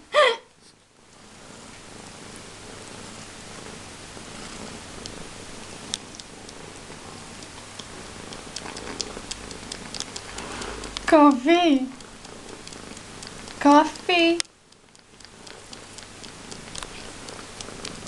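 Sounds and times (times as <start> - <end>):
cat purring: 0.6 - 18.0
small clicks: 5.8 - 6.7, 7.4 - 18.0.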